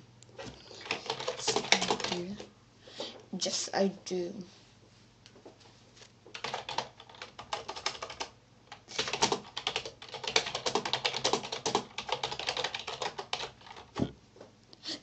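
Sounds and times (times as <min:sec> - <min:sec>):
rapid typing on keyboard: 0:00.7 - 0:02.5, 0:06.3 - 0:14.0.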